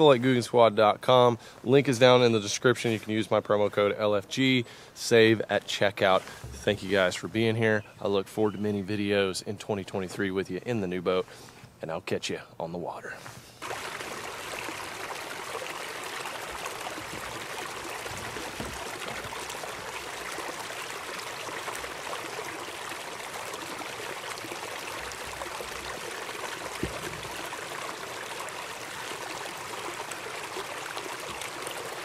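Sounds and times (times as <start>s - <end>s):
brief low thump: 6.4s - 6.7s, 26.8s - 27.4s
creek rushing over rocks: 13.6s - 32.0s.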